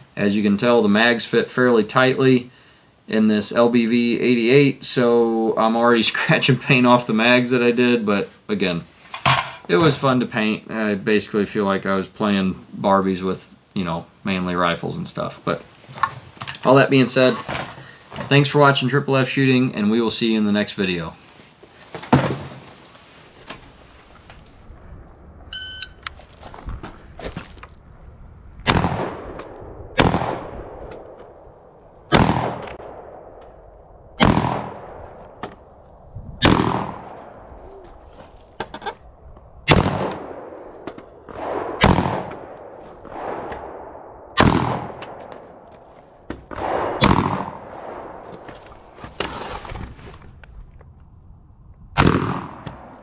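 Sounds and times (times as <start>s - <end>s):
short electronic beep: 25.5s - 26.1s
rifle shots with echo: 28.6s - 31.4s, 32.1s - 35.4s, 36.4s - 37.5s, 39.7s - 45.6s, 46.4s - 48.3s, 52.0s - 53.0s.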